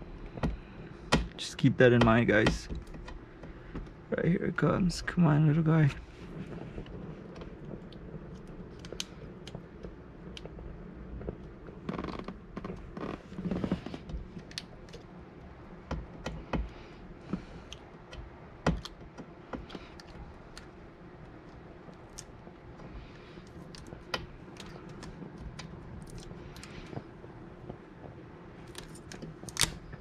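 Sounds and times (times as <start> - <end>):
tint film peeling off glass: 28.6 - 30.0.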